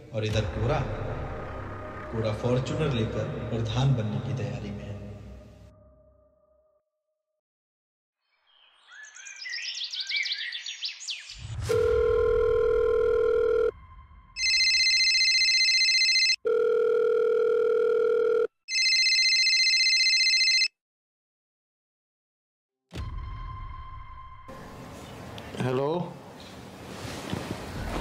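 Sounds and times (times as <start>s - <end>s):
phone ringtone: 11.7s - 13.7s, 14.4s - 20.7s.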